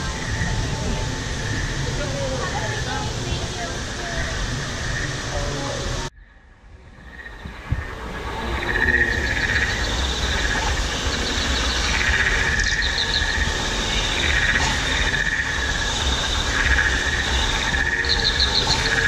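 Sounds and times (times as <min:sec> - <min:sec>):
rapid chirping trills: 0:07.0 - 0:19.0
pulsing creature call: 0:07.9 - 0:19.0.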